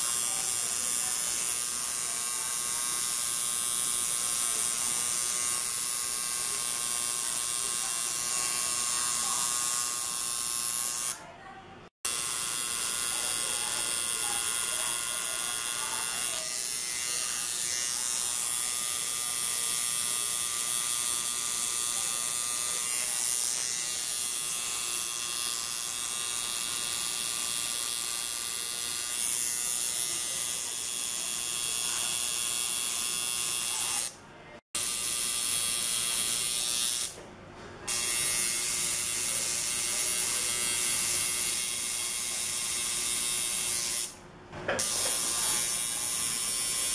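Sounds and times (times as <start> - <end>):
tattoo machine buzzing: 0.0 - 11.3, 12.0 - 34.2, 34.8 - 37.2, 37.9 - 46.9.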